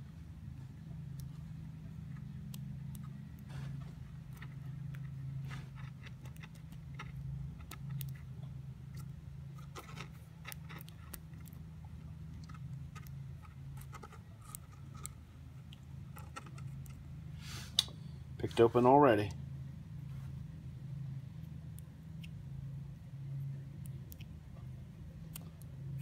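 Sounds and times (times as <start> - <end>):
steady low hum: 0.0 - 26.0
lock picking clicks and scrapes: 4.2 - 8.3, 8.9 - 11.6, 12.3 - 15.2, 16.1 - 17.0.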